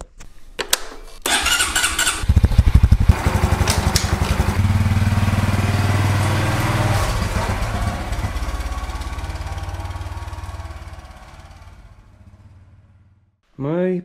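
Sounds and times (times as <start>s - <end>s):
electric starter whirr: 1.2s - 11.1s
motorcycle engine running: 1.3s - 13.4s.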